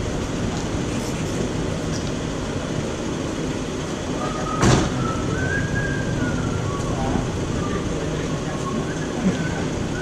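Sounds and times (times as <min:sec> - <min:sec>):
low rumbling background noise: 0:00.0 - 0:10.0
sharp thump: 0:04.6 - 0:05.0.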